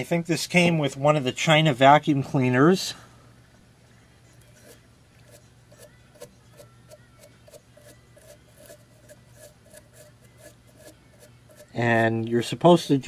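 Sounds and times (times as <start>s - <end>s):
small brush scrubbing plastic: 4.4s - 13.0s.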